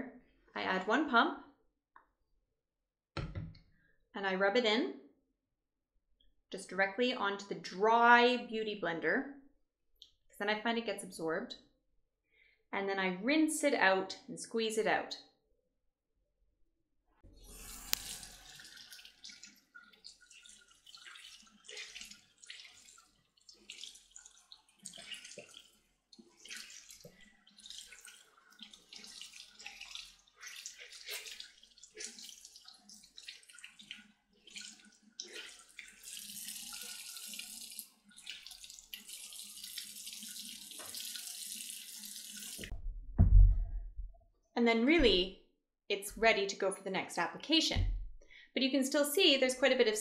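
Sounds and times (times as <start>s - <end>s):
tap water splashing into sink: 3.2s - 3.6s, 17.9s - 43.3s.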